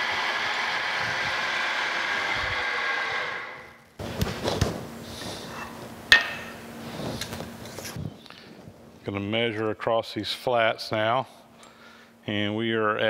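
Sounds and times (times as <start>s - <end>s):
milling machine spindle winding down: 0.0s - 4.0s.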